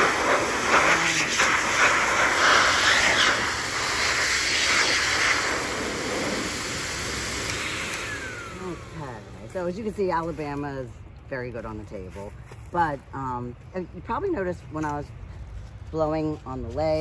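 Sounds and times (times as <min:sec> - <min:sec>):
dog dryer blowing hiss: 0:00.0 - 0:09.1.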